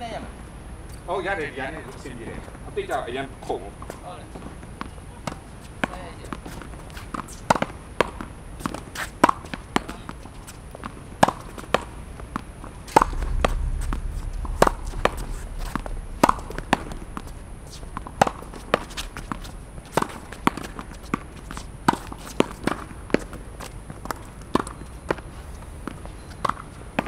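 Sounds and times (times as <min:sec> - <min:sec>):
low rumble: 0:12.7 - 0:21.8.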